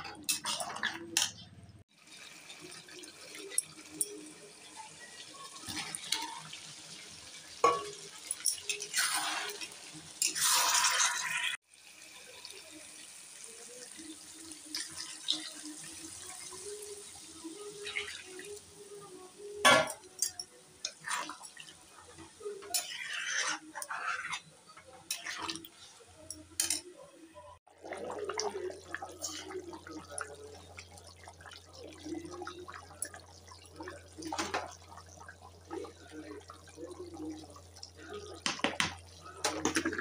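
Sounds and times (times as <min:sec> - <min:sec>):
frying hiss: 0:01.9 - 0:26.8
ladle scraping metal pan: 0:22.6 - 0:24.5.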